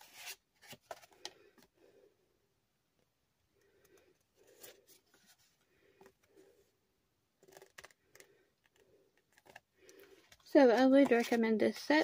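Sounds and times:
paper cards shuffling: 7.4s - 12.0s.

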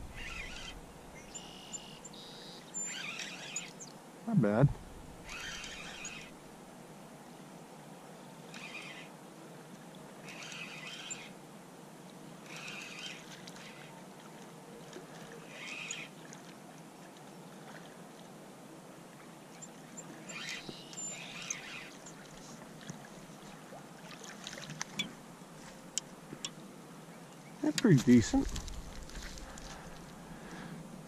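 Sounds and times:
fish splashing in water: 22.2s - 25.0s.

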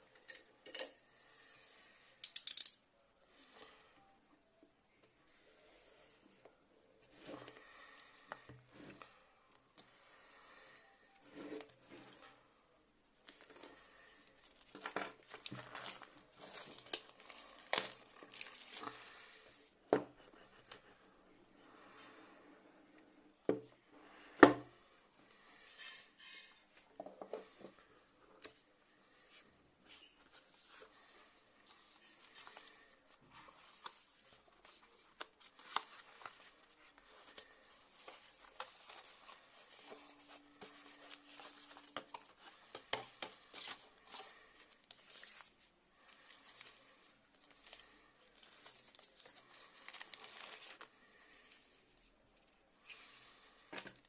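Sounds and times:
plastic shrink-wrap crinkling: 14.4s - 19.2s, 47.4s - 50.9s.

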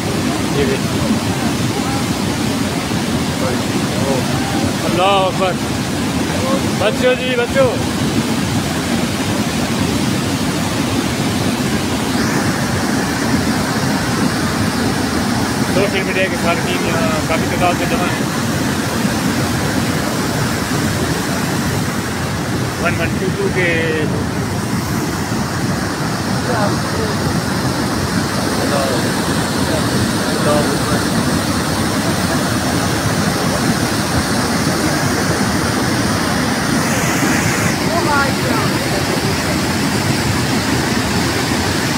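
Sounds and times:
flood water rushing: 0.0s - 41.9s
bright water hiss: 11.4s - 41.9s.

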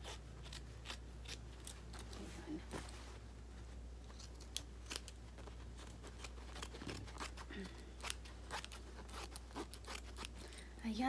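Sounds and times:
scissors snipping fabric: 0.0s - 2.2s, 5.8s - 10.6s
low steady hum: 0.0s - 11.0s.

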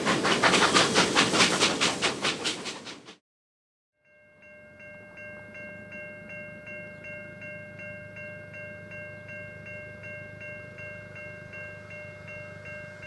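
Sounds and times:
low rumble of train: 0.0s - 3.2s, 4.5s - 13.0s
level crossing warning bell: 4.0s - 13.0s.

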